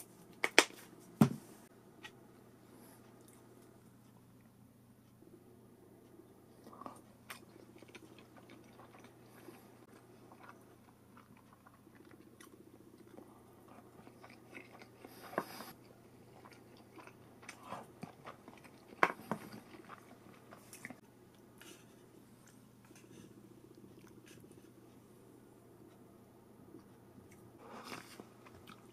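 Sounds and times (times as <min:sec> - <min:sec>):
person chewing: 0:06.6 - 0:24.9, 0:26.7 - 0:28.9.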